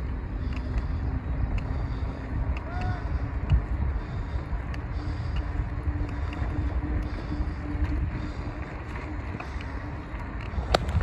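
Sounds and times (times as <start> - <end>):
faint steady hum: 0.0 - 11.0
wind rushing over microphone: 0.0 - 11.0.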